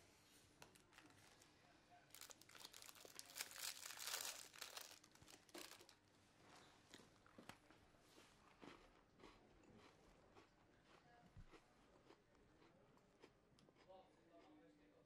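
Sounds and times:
paper crinkling: 0:02.1 - 0:06.0.

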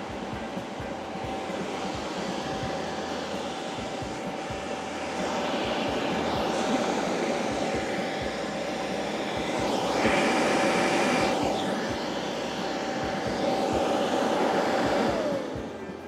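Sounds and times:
electric air blower whining: 0:00.0 - 0:16.0.

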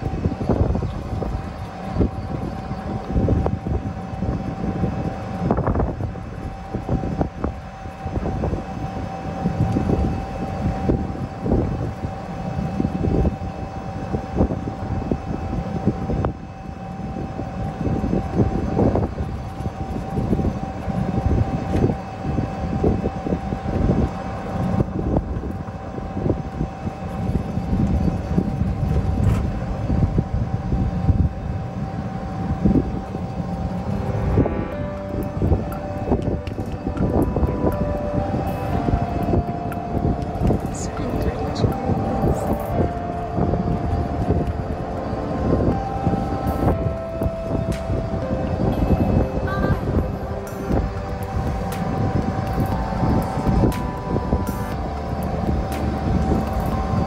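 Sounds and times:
wind buffeting microphone: 0:00.0 - 0:57.0
faint steady high tone: 0:30.0 - 0:57.0.

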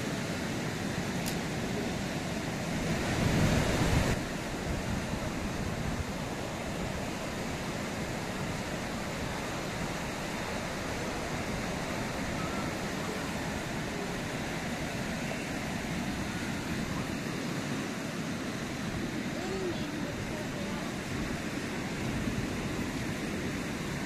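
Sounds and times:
surf washing onto shore: 0:00.0 - 0:24.0
wind on microphone: 0:01.1 - 0:17.8.

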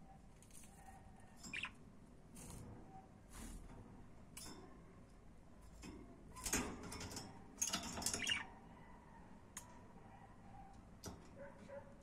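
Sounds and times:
budgies scratchy clicking: 0:01.5 - 0:01.8, 0:08.0 - 0:08.5.

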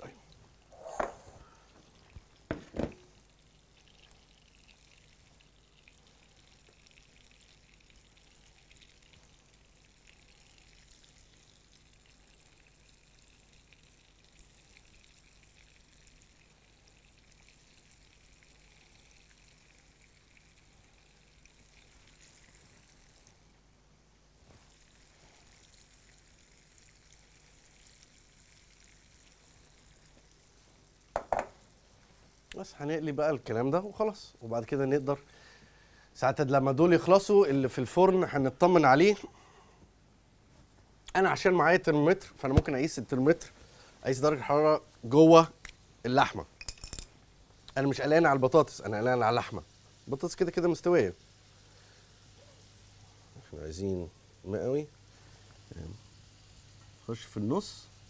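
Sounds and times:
beef sizzling in oil: 0:02.0 - 0:23.5, 0:24.4 - 0:32.6, 0:46.8 - 0:58.0.

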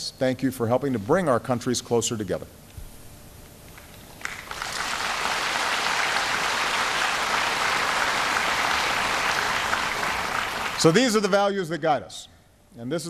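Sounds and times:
audience applause: 0:04.2 - 0:11.0.

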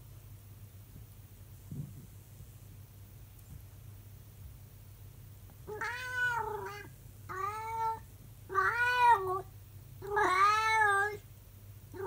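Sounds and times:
cat yowling: 0:05.7 - 0:11.2.

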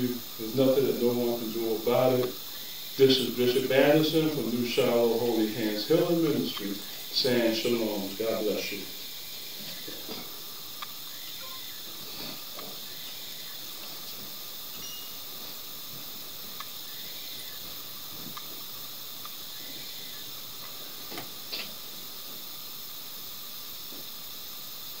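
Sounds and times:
recording noise hiss: 0:00.0 - 0:25.0
faint ticks: 0:06.5 - 0:07.1, 0:09.6 - 0:21.8.

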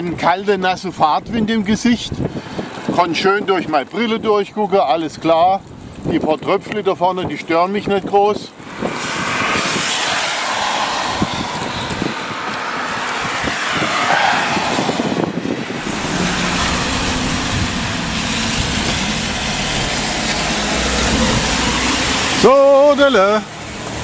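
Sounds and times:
wind: 0:00.0 - 0:24.0
tyres hissing on wet road: 0:02.2 - 0:03.0, 0:08.6 - 0:24.0
deep low rumble: 0:15.8 - 0:22.4
rain pattering on plastic cover: 0:15.8 - 0:24.0.

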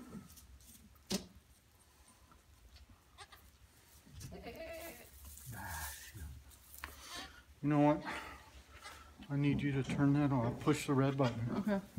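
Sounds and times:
goat bleating: 0:03.2 - 0:03.5, 0:04.2 - 0:05.1.

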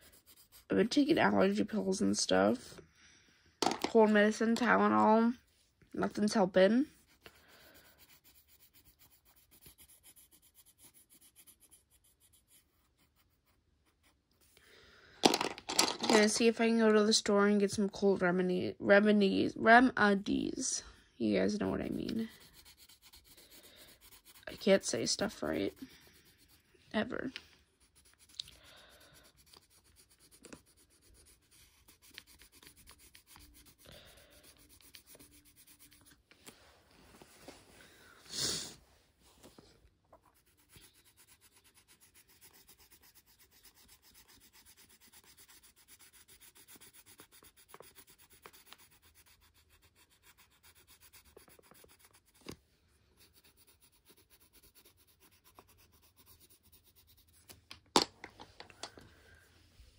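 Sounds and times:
pencil rubbing on paper: 0:00.0 - 0:02.8, 0:03.9 - 0:14.6, 0:21.3 - 0:36.2, 0:40.2 - 0:52.6, 0:53.2 - 0:57.5.

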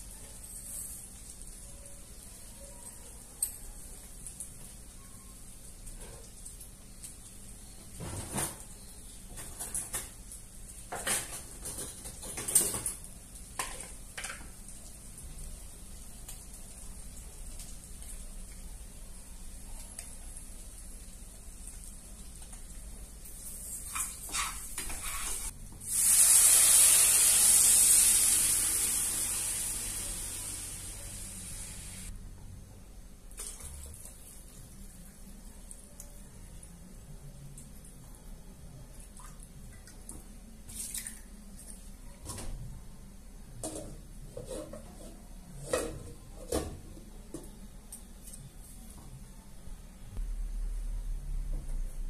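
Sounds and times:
dishes and utensils clinking: 0:10.9 - 0:14.5
water hissing in hot pot: 0:25.2 - 0:32.1.

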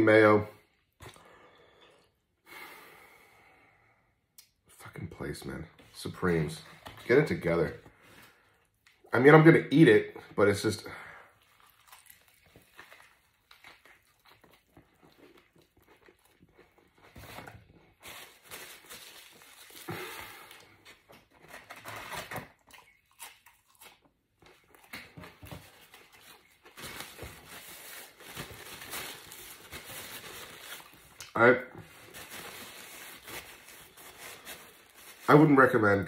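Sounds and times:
paper wrapper crinkling: 0:17.1 - 0:22.6, 0:25.4 - 0:36.0.

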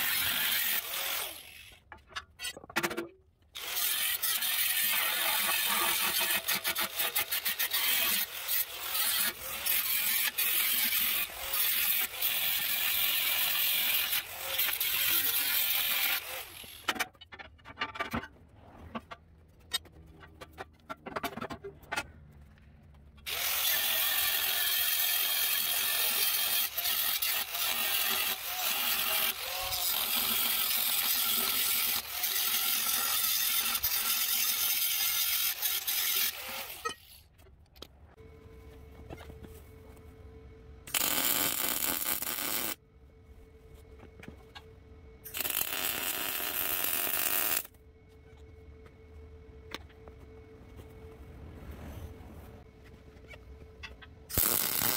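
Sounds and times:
tool scraping metal: 0:03.6 - 0:22.0.

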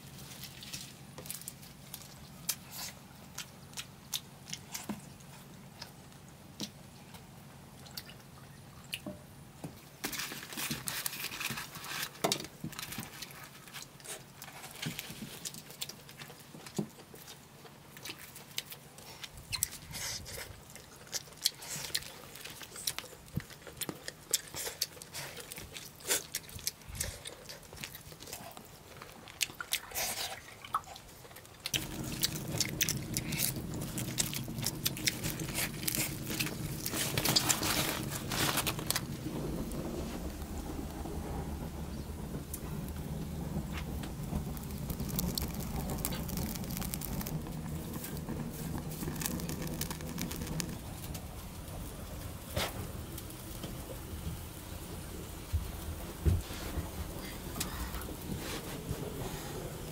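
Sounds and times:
small clicks and crunches: 0:10.0 - 0:30.4, 0:31.2 - 0:40.5, 0:43.6 - 0:51.8
wet chewing and lip-smacking: 0:15.4 - 0:37.5.

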